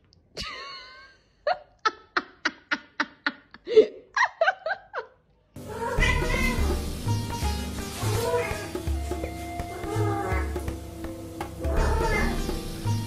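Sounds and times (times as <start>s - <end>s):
person laughing: 0.4s - 5.2s
music: 5.6s - 13.0s.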